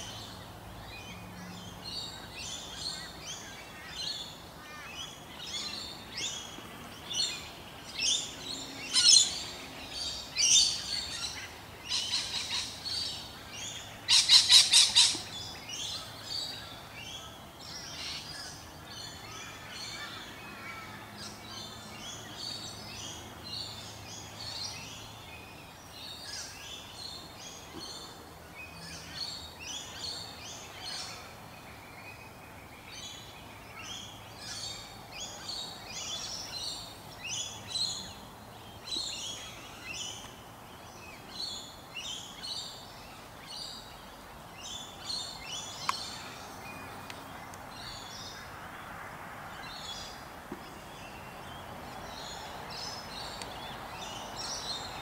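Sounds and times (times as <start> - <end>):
small birds chirping: 0.0 - 48.8, 49.5 - 55.0.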